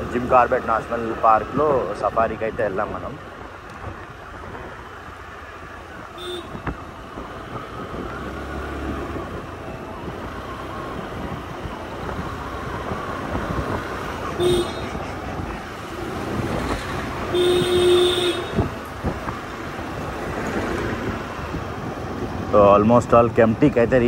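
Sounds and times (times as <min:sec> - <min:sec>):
road and traffic noise: 0:00.0 - 0:24.0
vehicle horn tooting: 0:06.2 - 0:06.7, 0:14.3 - 0:15.0, 0:17.3 - 0:18.7.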